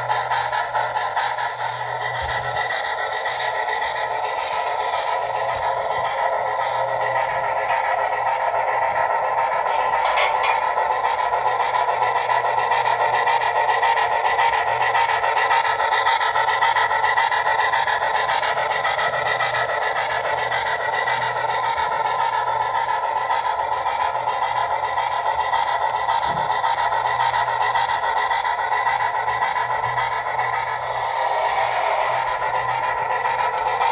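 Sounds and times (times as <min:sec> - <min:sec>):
model steam locomotive sound: 0:00.0 - 0:33.9
model wheels running on rails: 0:00.0 - 0:33.9
thin high whine: 0:29.6 - 0:33.9.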